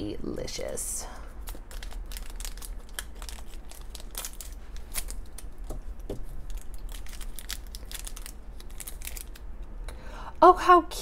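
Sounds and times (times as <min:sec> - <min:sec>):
plastic wrapper crinkling: 0:01.3 - 0:09.7.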